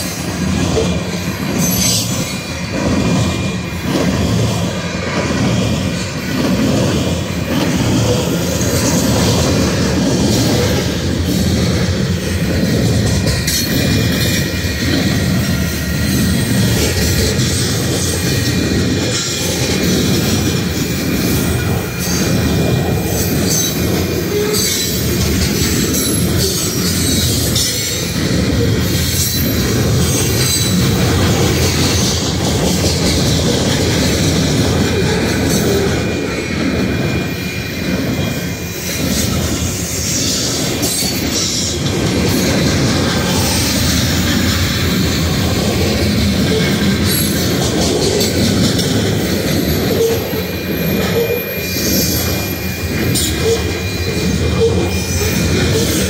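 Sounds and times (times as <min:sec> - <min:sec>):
steel wheels rumbling on rail: 0:00.0 - 0:56.0
wheels clicking over rail joints: 0:38.8 - 0:56.0.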